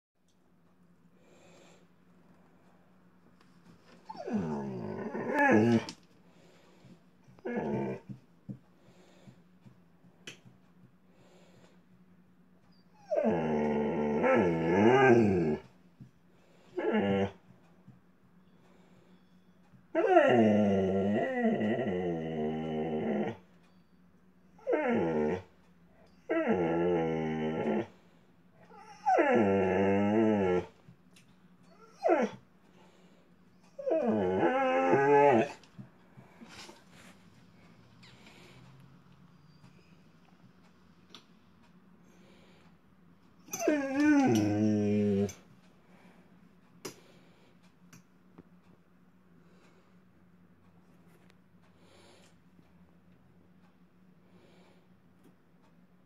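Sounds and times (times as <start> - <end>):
dog howling whines: 4.0 - 5.9, 7.4 - 8.0, 12.7 - 15.7, 16.8 - 17.4, 19.9 - 23.5, 24.5 - 28.0, 28.6 - 30.8, 31.7 - 32.4, 33.6 - 35.6, 43.4 - 45.4.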